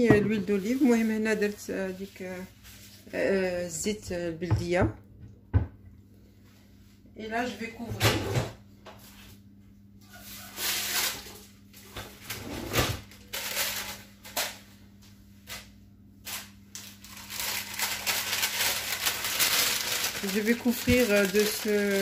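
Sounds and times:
baking paper crinkling: 0:00.3 - 0:03.7, 0:09.0 - 0:22.0.

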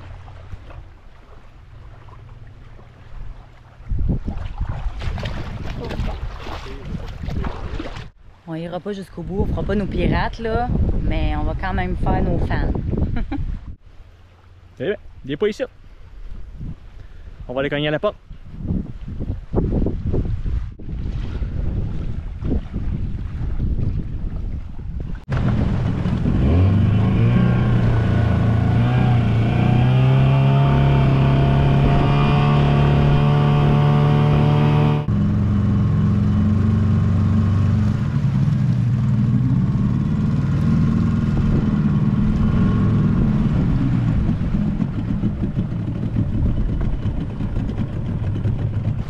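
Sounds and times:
boat engine revving: 0:25.3 - 0:49.0.

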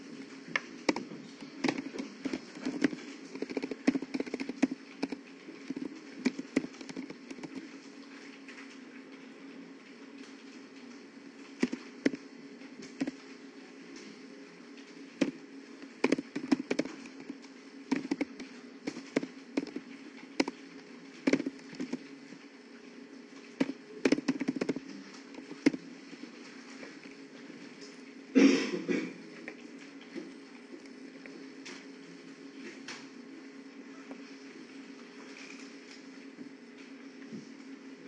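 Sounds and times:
steady low hum: 0:00.0 - 0:38.0.

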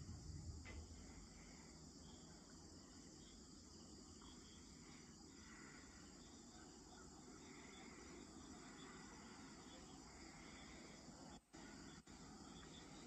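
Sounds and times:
low background rumble: 0:00.0 - 0:06.2
crickets chirping: 0:00.0 - 0:13.0.

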